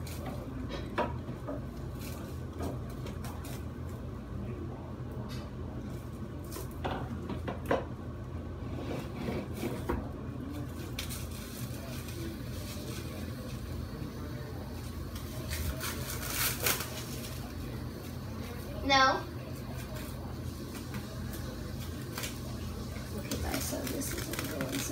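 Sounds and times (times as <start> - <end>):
steady low hum: 0.0 - 24.9
cling wrap crinkling: 15.2 - 18.2, 21.7 - 24.9.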